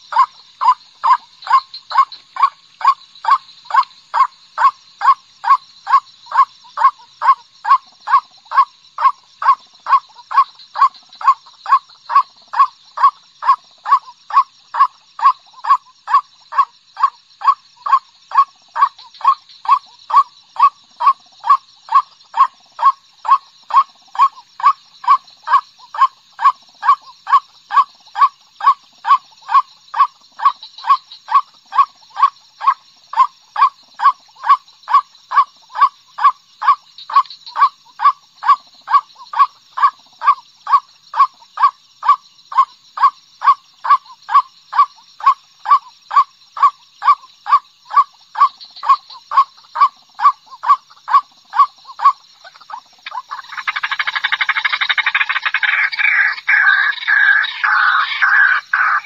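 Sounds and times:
dense harsh bird calling: 0:51.6 - 0:59.0.

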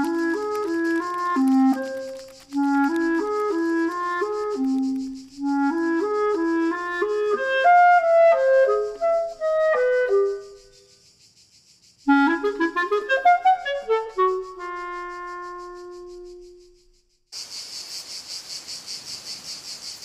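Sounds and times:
clarinet playing bouncy melody: 0:00.0 - 0:10.6, 0:12.1 - 0:16.8.

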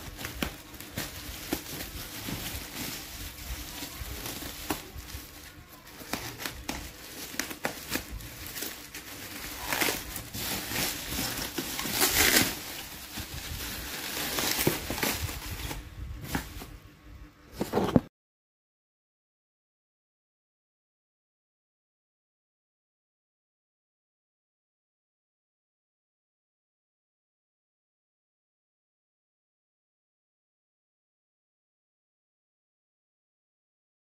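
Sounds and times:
bubble wrap crinkling: 0:00.0 - 0:16.7.

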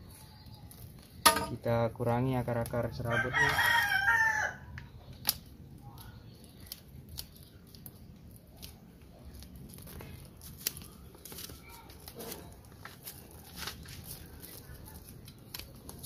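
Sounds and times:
rooster crowing: 0:03.1 - 0:04.7
scissors snipping roots: 0:04.8 - 0:16.0.

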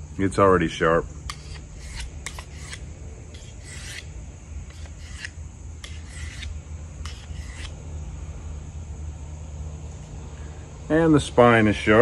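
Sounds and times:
knife scraping on sharpener: 0:01.3 - 0:04.1, 0:04.7 - 0:07.8.

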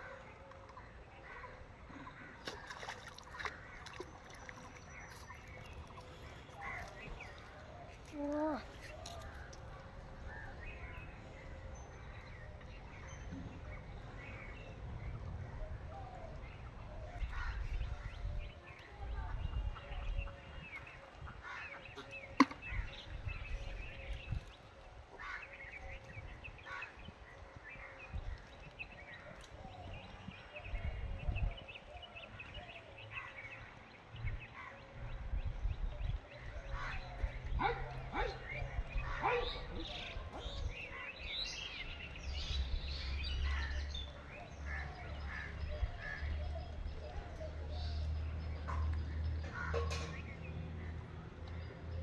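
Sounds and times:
fish splashing in water: 0:02.4 - 0:07.5
small birds chirping: 0:02.4 - 0:14.0
wind rumble on microphone: 0:05.5 - 0:21.5, 0:22.6 - 0:32.7, 0:33.7 - 0:48.9.

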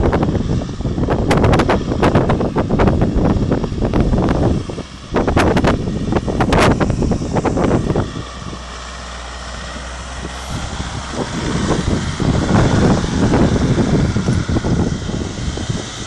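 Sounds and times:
wind buffeting microphone: 0:00.0 - 0:16.0
vehicle engine driving past: 0:04.5 - 0:16.0.

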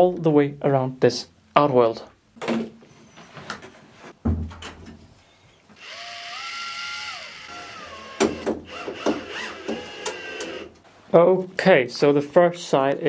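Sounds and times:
power drill whining: 0:05.7 - 0:10.7.

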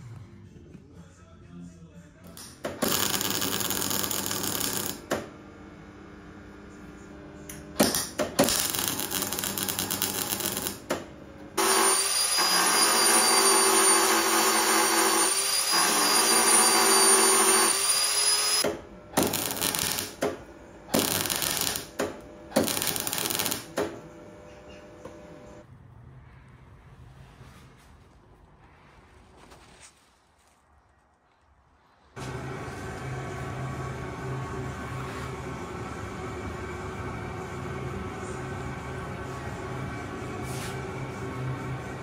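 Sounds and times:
welder crackling: 0:02.3 - 0:05.2, 0:07.8 - 0:11.0, 0:19.2 - 0:20.3, 0:20.9 - 0:23.9
power file grinding: 0:11.6 - 0:18.6.

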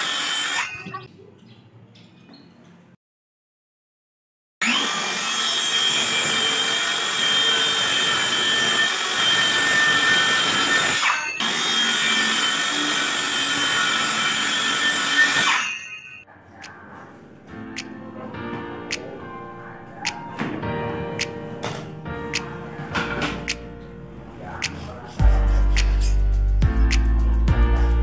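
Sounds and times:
circular saw cutting plywood: 0:00.0 - 0:00.9, 0:04.6 - 0:16.2.

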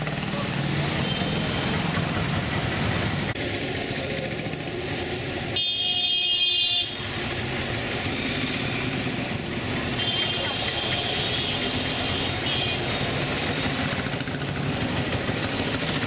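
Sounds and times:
small engine and road noise: 0:00.0 - 0:16.0
vehicle horn: 0:05.6 - 0:07.1, 0:09.9 - 0:13.0.

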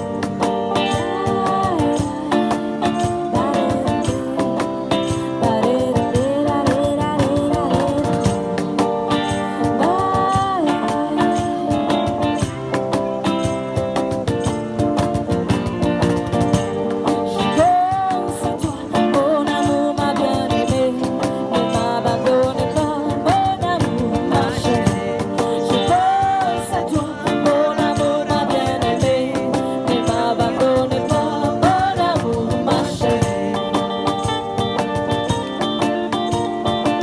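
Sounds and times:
cajon beat: 0:00.0 - 0:37.0
strummed acoustic guitars: 0:00.0 - 0:37.0
person singing: 0:00.7 - 0:12.5, 0:17.0 - 0:34.8.

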